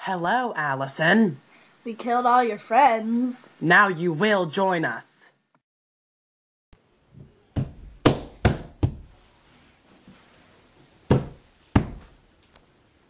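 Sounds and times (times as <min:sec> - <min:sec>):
loud sharp knocks: 0:07.6 - 0:09.1, 0:11.1 - 0:12.1.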